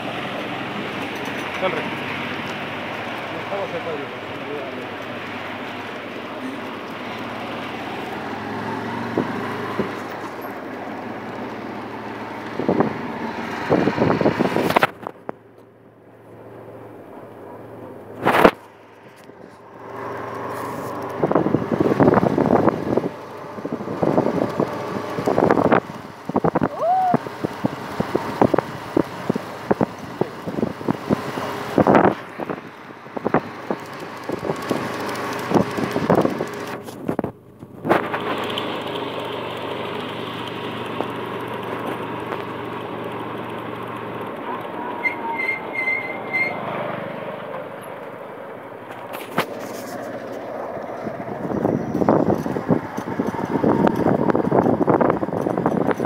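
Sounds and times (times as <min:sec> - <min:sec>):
vehicle engine and road noise: 0:00.0 - 0:56.0
knocks and rattles: 0:49.0 - 0:56.0.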